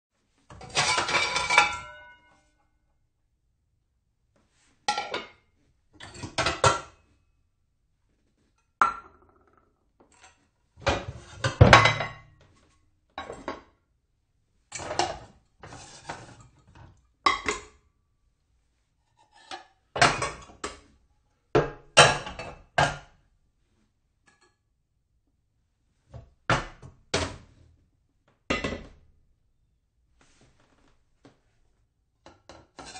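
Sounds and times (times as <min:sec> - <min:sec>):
dishes clattering and clinking: 0:00.5 - 0:02.3, 0:04.9 - 0:07.0, 0:08.8 - 0:12.4, 0:13.2 - 0:13.7, 0:14.7 - 0:17.8, 0:19.3 - 0:20.8, 0:21.6 - 0:23.1, 0:32.3 - 0:32.9.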